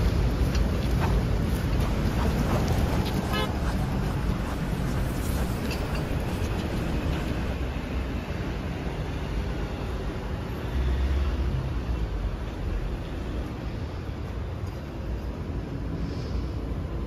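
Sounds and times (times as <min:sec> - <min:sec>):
traffic rumble of passing cars: 0:00.0 - 0:17.0.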